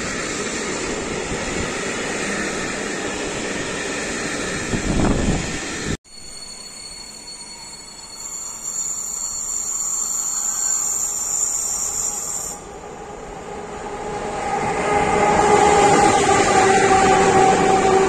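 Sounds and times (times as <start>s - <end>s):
electric locomotive hum: 0.0s - 18.0s
freight train running noise: 0.0s - 18.0s
high-pitched squeal: 3.8s - 12.8s.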